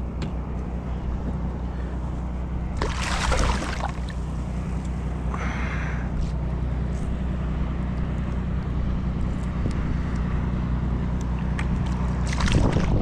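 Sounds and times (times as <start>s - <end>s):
boat motor idling: 0.0s - 13.0s
fish splashing into water: 2.8s - 4.2s, 12.2s - 13.0s.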